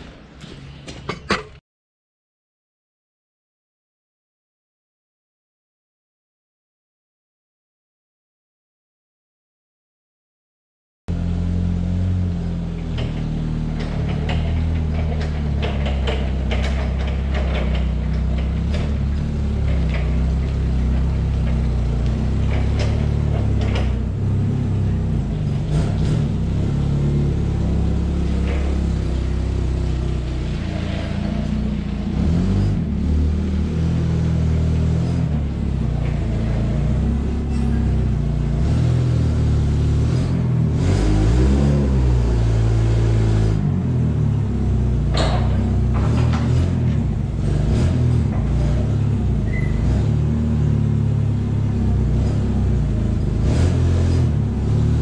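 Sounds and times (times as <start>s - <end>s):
forklift engine running: 11.1s - 55.0s.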